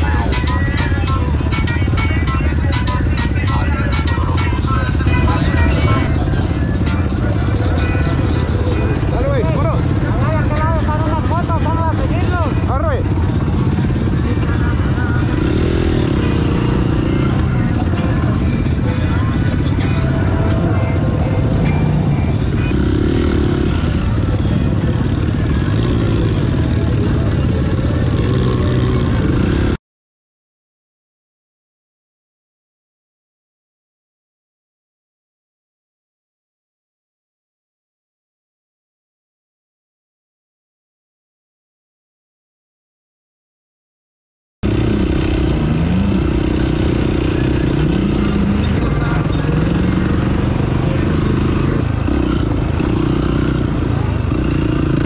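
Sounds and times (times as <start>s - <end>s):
off-road vehicle engine running: 0.0s - 29.8s, 44.6s - 55.0s.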